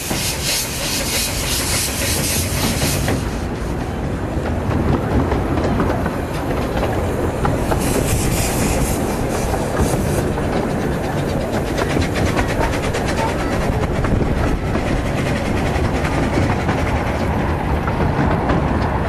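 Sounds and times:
hiss: 0.0 - 3.8, 7.3 - 17.4
miniature train rumbling: 0.0 - 19.0
wheels clicking over rail joints: 0.0 - 19.0.

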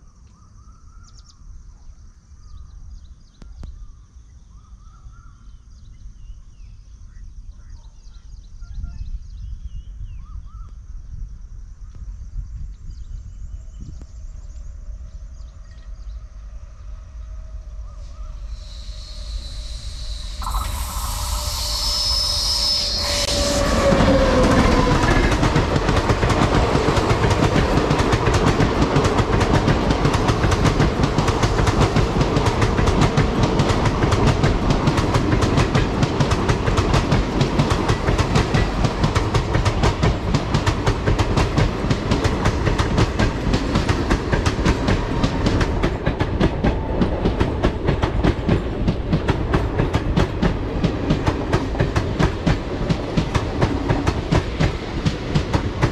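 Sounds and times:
train rumble: 12.6 - 55.9
falling pitch tone: 18.0 - 26.0
train wheels clattering over rail joints: 23.4 - 55.9.

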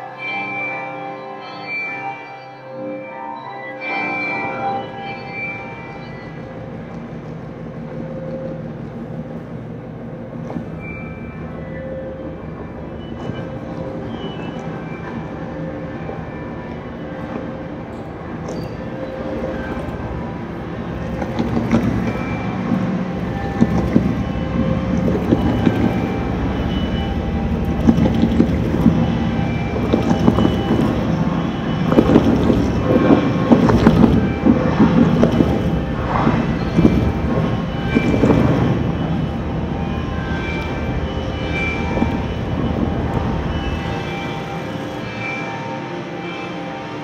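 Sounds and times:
sewing machine mechanical drone: 17.6 - 45.2.

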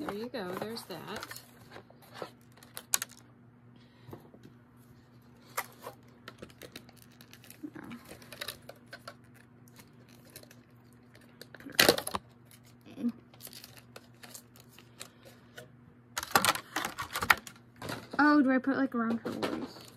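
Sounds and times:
plastic clatter: 0.0 - 3.2, 16.2 - 18.3, 19.0 - 19.9.

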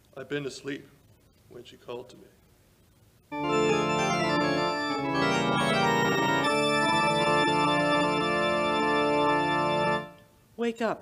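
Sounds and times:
organ playing sustained chords: 3.3 - 10.3.

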